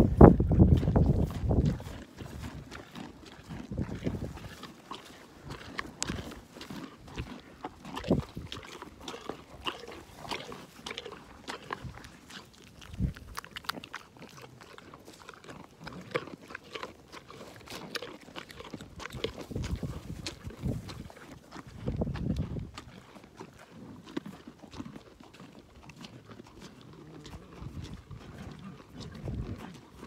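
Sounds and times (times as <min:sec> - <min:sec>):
animals crunching carrots: 0:00.0 - 0:30.0.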